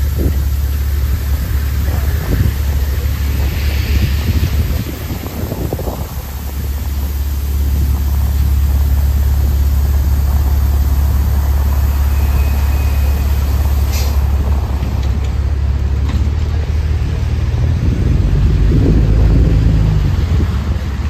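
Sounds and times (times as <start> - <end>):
bus diesel engine idling: 0.0 - 21.0
faint high beep: 12.0 - 13.5.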